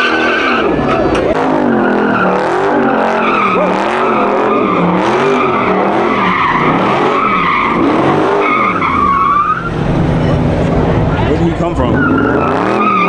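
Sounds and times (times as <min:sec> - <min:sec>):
tyres squealing: 0:00.0 - 0:10.4, 0:11.6 - 0:13.0
car engine revving: 0:00.0 - 0:13.0.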